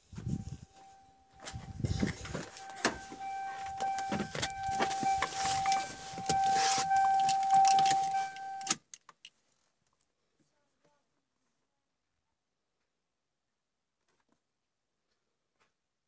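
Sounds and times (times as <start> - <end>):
person climbing into seat: 1.4 - 8.7
car door shutting: 1.4 - 8.8
car key-reminder buzzer: 1.4 - 8.8
car door clicks and knocks: 2.4 - 6.5.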